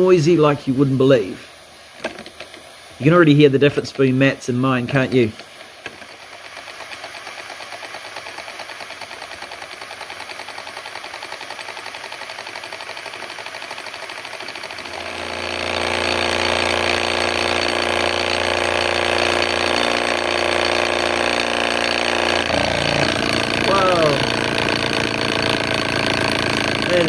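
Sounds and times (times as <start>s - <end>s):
model engine clattering: 2.0s - 2.7s, 4.9s - 27.0s
steady mechanical whine: 13.5s - 27.0s.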